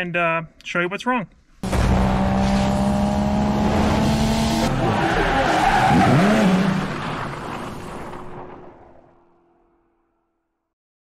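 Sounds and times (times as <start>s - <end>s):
car engine noise: 1.6s - 10.0s
tyres skidding and squealing: 1.9s - 9.5s.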